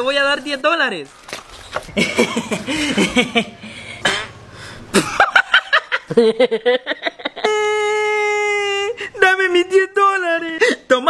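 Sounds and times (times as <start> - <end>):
woman laughing: 1.9 - 4.1, 5.0 - 9.0
man laughing: 1.9 - 4.3, 4.9 - 9.0.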